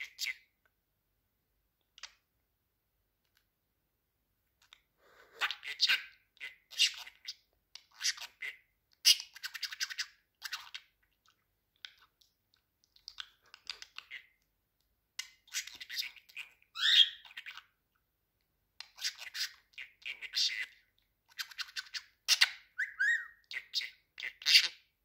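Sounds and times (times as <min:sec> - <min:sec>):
budgerigar chattering and warbling: 0:15.5 - 0:17.6, 0:21.4 - 0:24.8
budgerigar whistled glide: 0:22.8 - 0:23.4.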